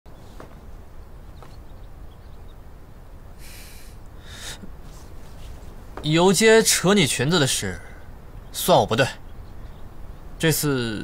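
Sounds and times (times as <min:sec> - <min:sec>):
outdoor ambience rumble: 0:00.1 - 0:11.0
soft rustles: 0:00.2 - 0:01.7, 0:04.8 - 0:06.1.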